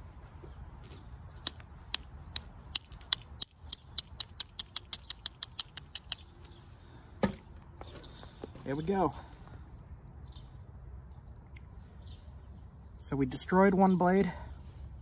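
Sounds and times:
billet tapping stone blade: 1.4s - 6.3s.

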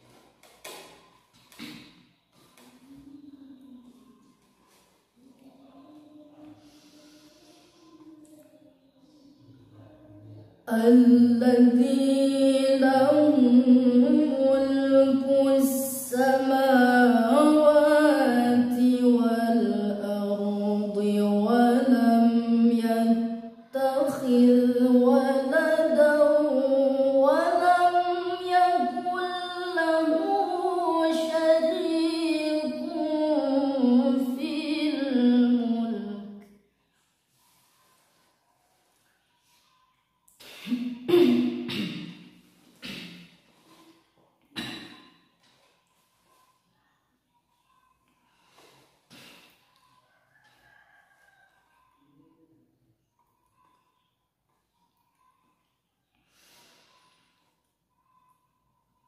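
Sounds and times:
woman chanting melodic recitation: 10.6s - 36.4s.

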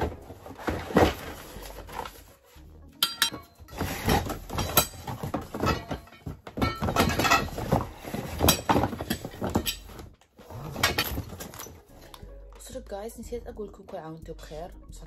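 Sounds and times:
cardboard rustling: 0.0s - 2.7s, 3.5s - 12.1s
metal tubes knocking and clinking: 3.0s - 12.2s.

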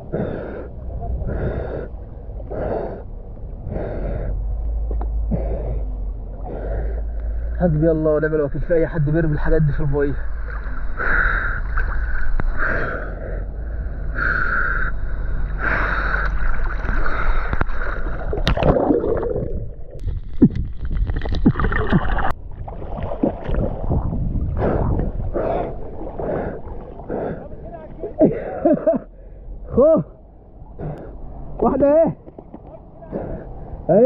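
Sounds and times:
water splashing around swimmer: 15.7s - 28.2s.

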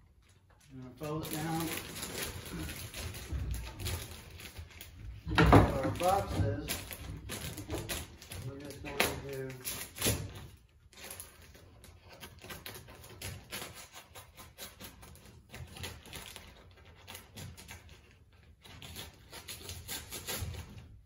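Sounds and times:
insulation crinkling and rustling: 0.0s - 12.0s.

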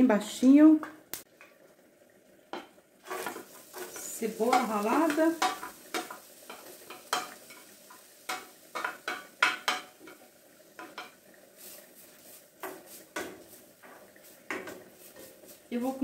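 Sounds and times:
spatula clacking against pan: 2.5s - 11.2s, 12.6s - 15.6s.

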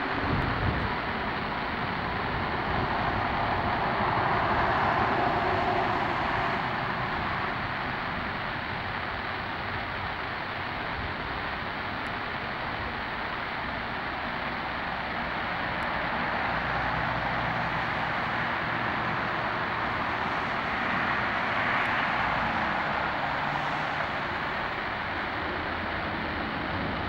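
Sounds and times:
jet engines on approach: 0.0s - 27.0s.

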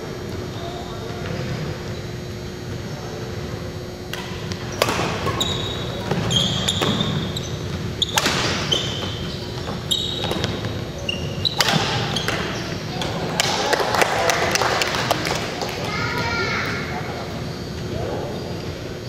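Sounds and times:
sneakers squeaking on court: 0.5s - 13.5s, 17.2s - 19.0s
racket hitting shuttlecock: 4.1s - 10.8s, 11.5s - 13.8s.

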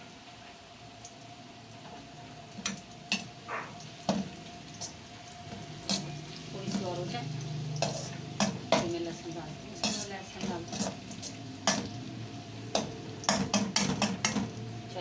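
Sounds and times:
onions sizzling in oil: 0.0s - 15.0s
metal spoon knocking against pan: 7.8s - 9.0s, 11.6s - 11.9s, 12.7s - 14.6s.

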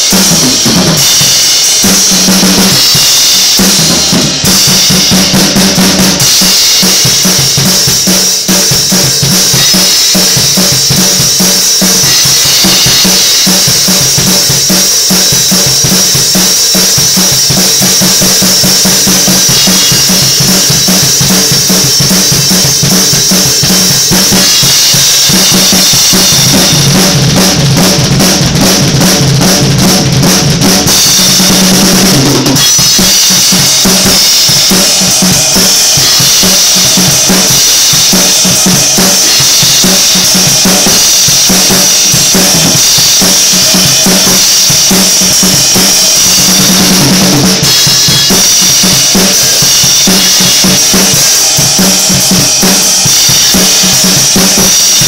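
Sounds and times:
acoustic drum kit played hard: 0.0s - 55.0s.

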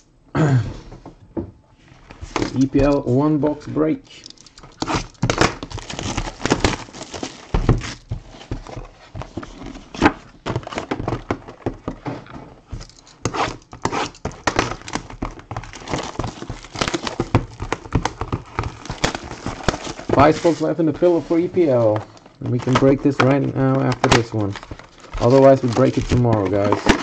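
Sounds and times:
plastic wrap crinkling: 4.3s - 11.4s, 12.7s - 27.0s.

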